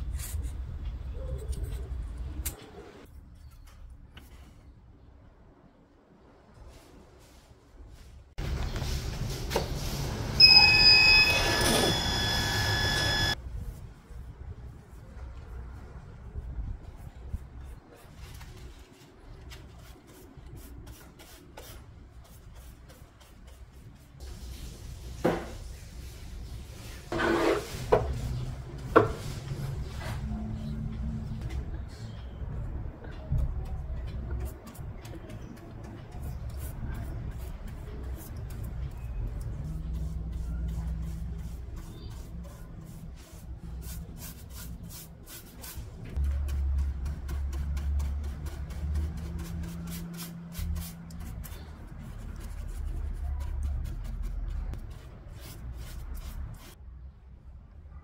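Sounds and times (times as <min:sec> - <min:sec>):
paintbrush scraping over wood: 0:17.0 - 0:30.7, 0:34.4 - 0:56.8.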